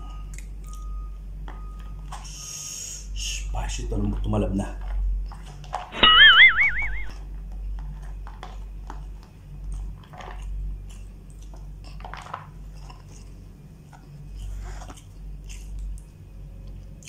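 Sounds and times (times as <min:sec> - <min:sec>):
person chewing and smacking: 0:12.7 - 0:17.0.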